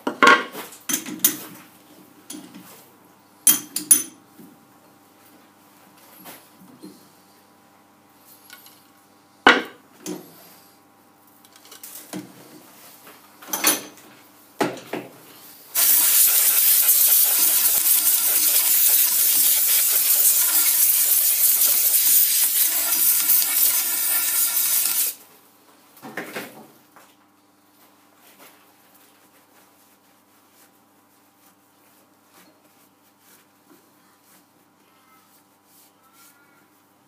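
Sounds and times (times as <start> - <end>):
compressed air blow gun hissing: 15.8 - 25.2.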